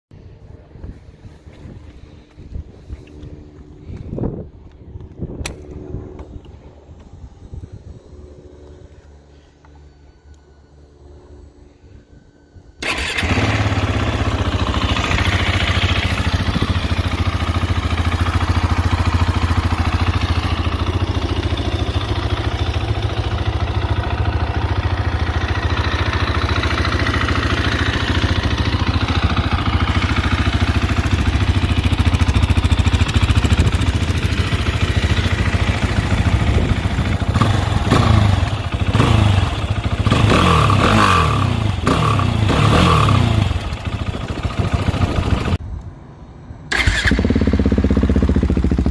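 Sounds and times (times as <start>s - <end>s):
engine revving: 12.8s - 45.6s
motorcycle engine idling: 12.8s - 45.6s, 46.7s - 48.9s
motorcycle engine starting: 12.8s - 45.6s, 46.6s - 48.9s.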